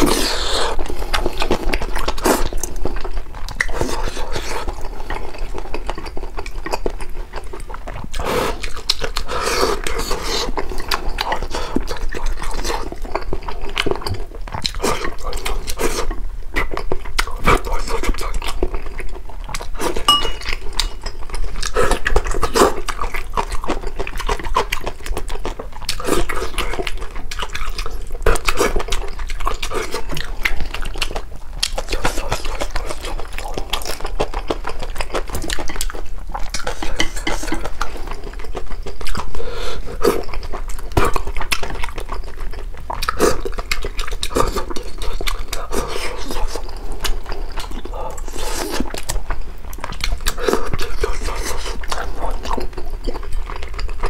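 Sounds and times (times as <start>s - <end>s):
slurping and chewing: 0.0s - 54.0s.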